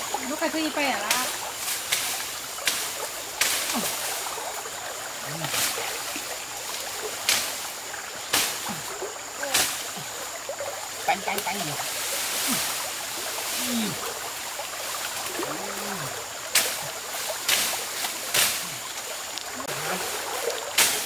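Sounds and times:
stream water running: 0:00.0 - 0:21.0
bamboo branches snapping: 0:01.0 - 0:04.1, 0:07.1 - 0:07.7, 0:08.3 - 0:08.8, 0:09.4 - 0:10.0, 0:16.5 - 0:19.6, 0:20.5 - 0:21.0.

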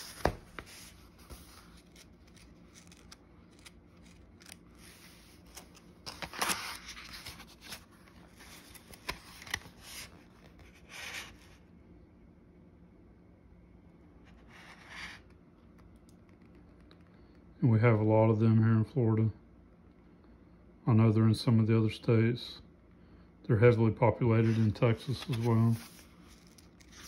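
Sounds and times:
book pages rustling: 0:00.0 - 0:11.5, 0:24.4 - 0:27.0.

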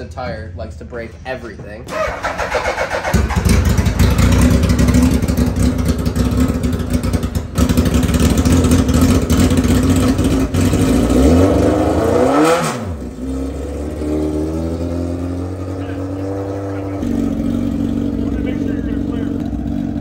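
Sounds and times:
vehicle engine running rough: 0:01.9 - 0:12.1, 0:13.0 - 0:20.0.

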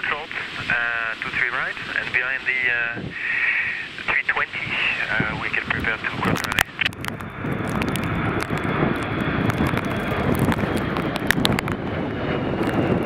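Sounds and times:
jet engine roar: 0:00.0 - 0:13.0
wind knocking on microphone: 0:05.1 - 0:13.0.

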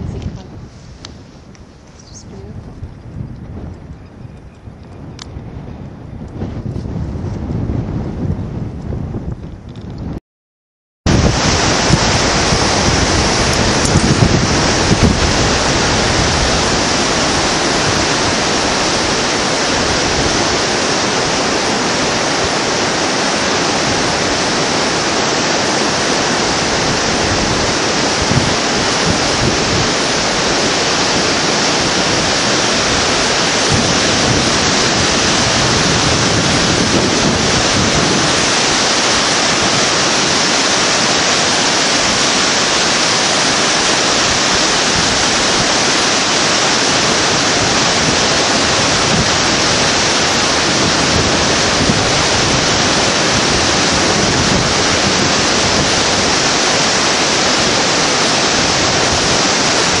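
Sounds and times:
river rushing over boulders: 0:11.1 - 1:00.0.

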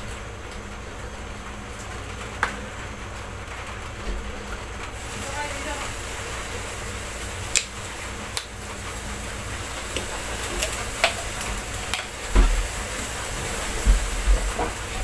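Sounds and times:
stove burner hissing: 0:00.0 - 0:15.0
sharp ticks of metal wok: 0:07.5 - 0:08.6, 0:09.9 - 0:12.2.

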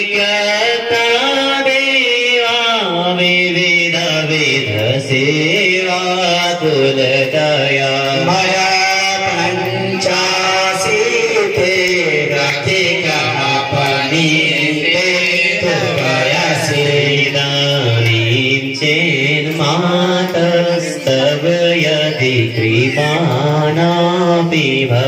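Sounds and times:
person chanting melodically: 0:00.0 - 0:25.0.

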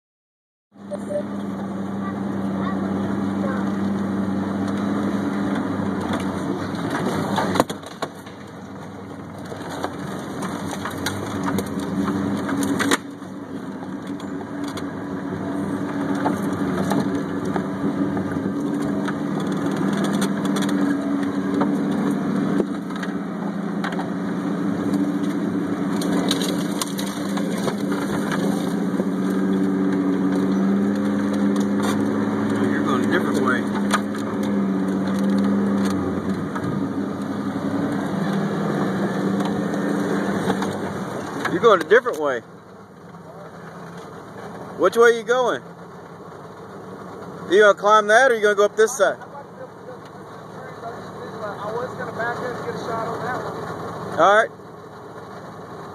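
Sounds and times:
car engine running at low speed: 0:00.8 - 0:55.9
twigs cracking and scraping: 0:09.3 - 0:14.9, 0:15.8 - 0:23.2, 0:24.8 - 0:32.7, 0:33.5 - 0:41.6.

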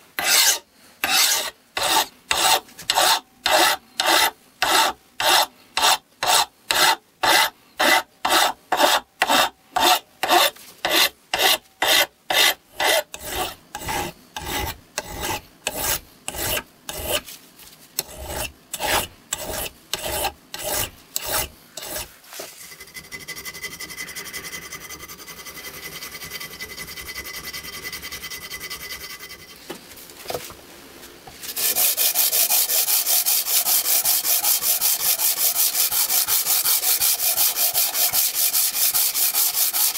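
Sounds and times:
file stroking over metal: 0:00.2 - 0:17.3, 0:18.0 - 0:29.6, 0:31.4 - 0:39.9
plane scrubbed on sandpaper: 0:00.2 - 0:17.4, 0:18.0 - 0:29.6, 0:31.4 - 0:39.9
steady scraping: 0:00.2 - 0:17.4, 0:18.0 - 0:29.7.

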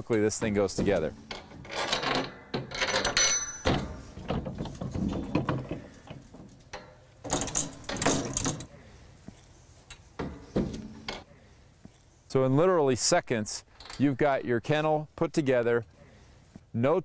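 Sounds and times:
metal kennel panels rattling: 0:00.0 - 0:08.7, 0:09.9 - 0:11.3.

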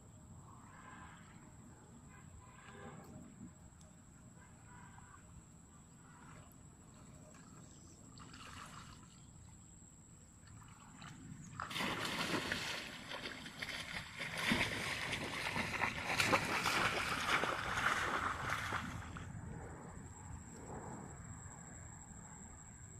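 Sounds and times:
faint outdoor ambience: 0:00.0 - 0:22.9
footsteps splashing through water: 0:10.5 - 0:19.2.

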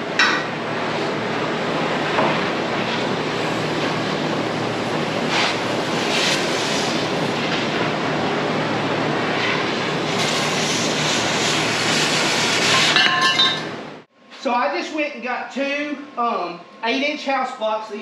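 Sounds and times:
cutting torch hissing: 0:02.0 - 0:13.0.

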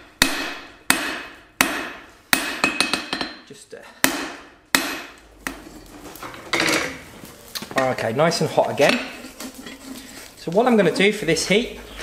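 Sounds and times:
hammer striking hot steel on anvil: 0:00.0 - 0:05.7.

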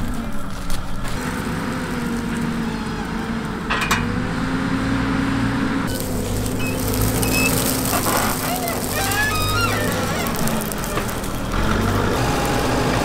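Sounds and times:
wheel loader diesel engine: 0:00.0 - 0:13.0.

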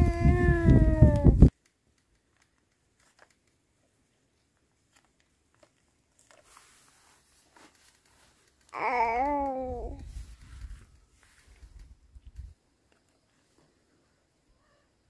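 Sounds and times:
faint clicks: 0:00.0 - 0:03.9, 0:07.6 - 0:13.5.

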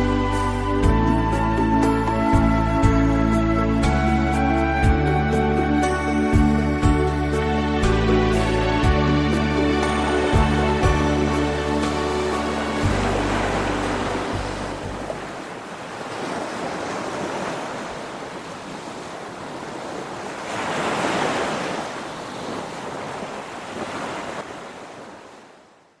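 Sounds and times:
song music: 0:00.0 - 0:15.4
sea surf waves: 0:00.0 - 0:26.0.

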